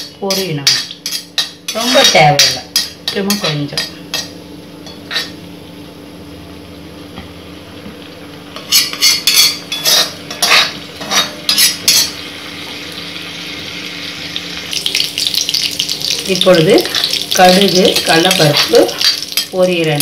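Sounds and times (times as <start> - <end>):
spatula scraping pan: 8.6 - 12.1
seeds sizzling in hot oil: 8.7 - 20.0.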